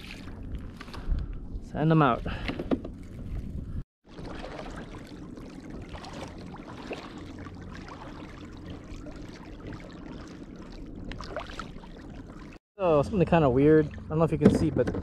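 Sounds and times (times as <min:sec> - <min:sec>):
water lapping against kayak hull: 0:00.0 - 0:01.0, 0:02.2 - 0:12.6.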